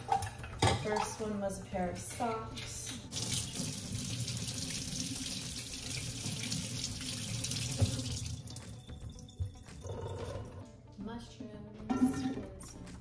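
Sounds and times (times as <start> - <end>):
tap water splashing: 3.2 - 9.8.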